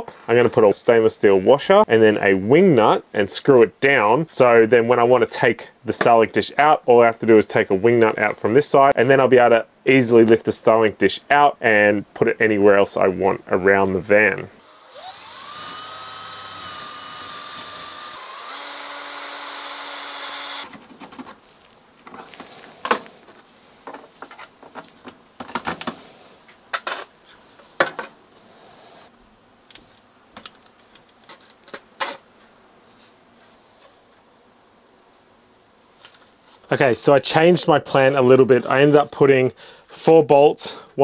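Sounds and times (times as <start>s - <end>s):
cordless drill drilling plastic: 14.6s - 20.8s.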